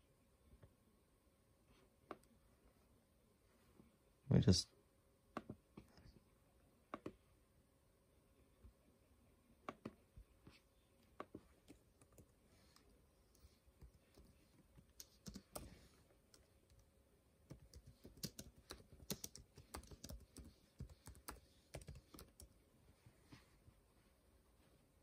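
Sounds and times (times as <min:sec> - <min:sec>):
faint keyboard typing: 0:09.6 - 0:23.4.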